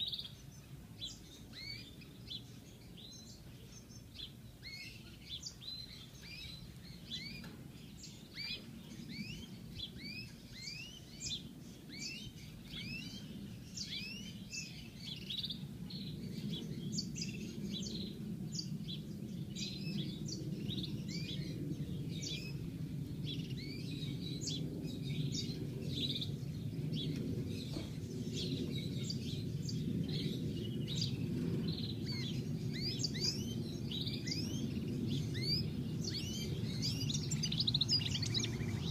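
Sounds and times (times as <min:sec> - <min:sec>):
low background rumble: 0:04.5 - 0:38.9
finch twittering: 0:26.9 - 0:38.9.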